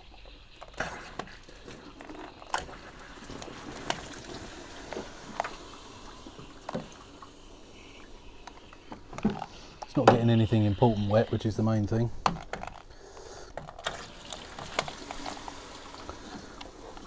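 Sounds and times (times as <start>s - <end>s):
water spraying and splashing: 0.0s - 11.4s, 13.8s - 17.0s.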